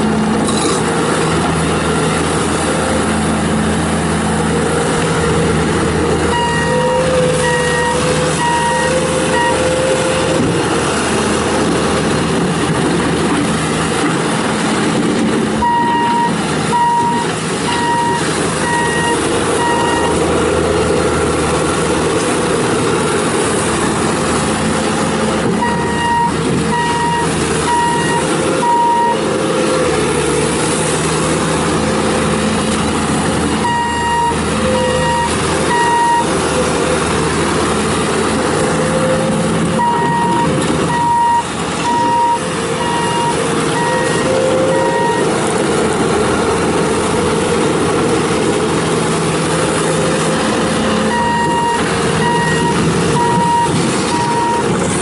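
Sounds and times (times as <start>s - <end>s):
diesel engine running: 0.0s - 55.0s
backup alarm beeping: 6.3s - 10.0s, 15.6s - 20.2s, 25.6s - 29.2s, 33.6s - 36.3s, 39.8s - 45.3s, 51.0s - 54.7s.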